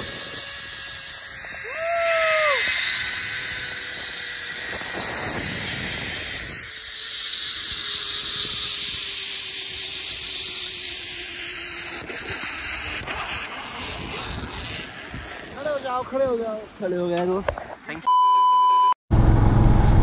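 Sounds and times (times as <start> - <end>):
pulley hissing along cable: 0.0 - 16.5
wind on microphone: 0.0 - 16.8.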